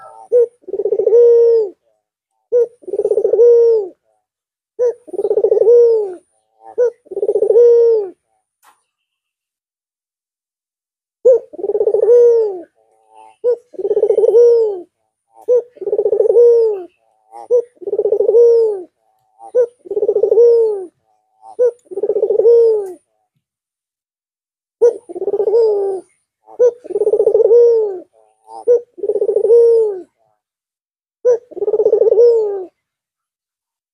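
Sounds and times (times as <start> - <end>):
dove cooing: 0.0 - 1.9, 2.5 - 4.1, 4.8 - 8.3, 11.2 - 23.1, 24.8 - 30.2, 31.2 - 32.8.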